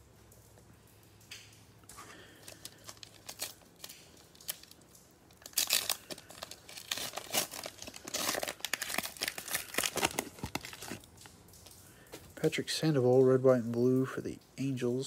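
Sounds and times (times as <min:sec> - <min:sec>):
plastic wrapper crinkling and tearing: 0:01.9 - 0:12.5.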